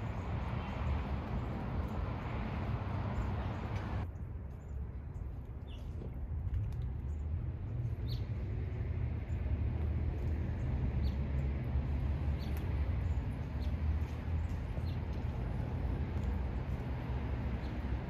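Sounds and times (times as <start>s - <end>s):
low outdoor rumble: 0.0s - 18.0s
small bird chirping: 7.9s - 8.4s, 12.2s - 15.4s.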